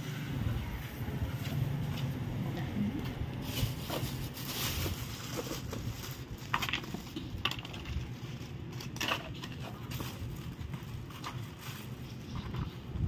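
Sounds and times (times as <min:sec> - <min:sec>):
plastic bag crinkling: 0:03.3 - 0:12.9.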